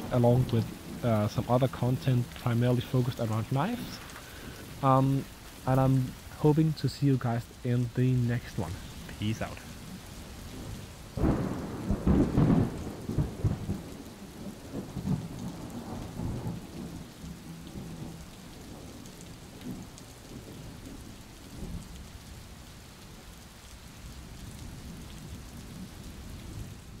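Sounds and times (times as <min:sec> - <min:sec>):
rain falling: 0:00.0 - 0:27.0
low rumbling gusts: 0:07.3 - 0:13.9.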